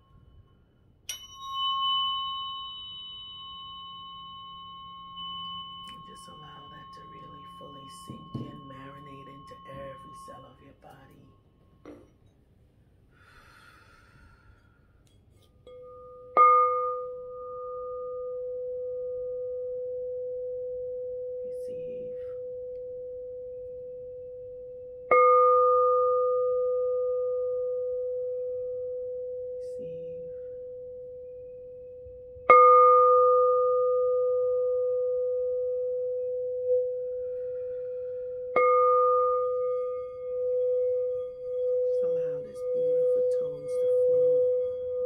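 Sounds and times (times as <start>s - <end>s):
crystal singing bowl struck: 0.0s - 12.3s, 15.7s - 21.2s, 32.4s - 45.0s
bowl low hum ringing: 0.0s - 45.0s.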